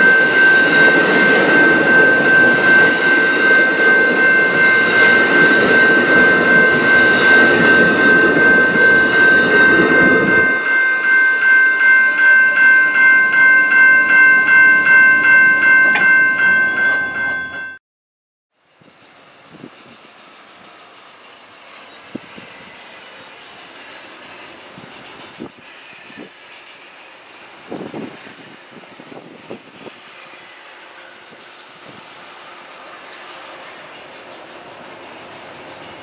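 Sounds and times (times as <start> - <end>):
train cars rumbling on rails: 0.0 - 10.7, 18.7 - 36.0
crossing bell ringing: 0.0 - 17.8.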